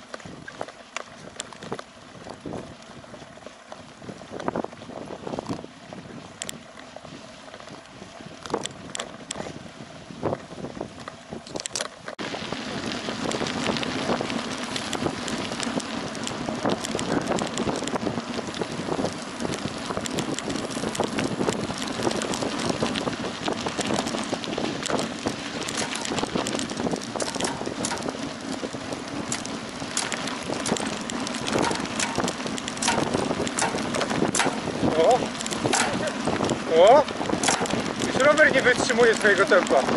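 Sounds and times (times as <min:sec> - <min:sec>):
bike rattling over gravel track: 0:00.0 - 0:39.9
wind buffeting microphone: 0:00.0 - 0:39.9
scattered clicks: 0:14.7 - 0:18.7, 0:19.4 - 0:23.0, 0:24.8 - 0:28.6, 0:29.2 - 0:36.6, 0:37.2 - 0:39.8.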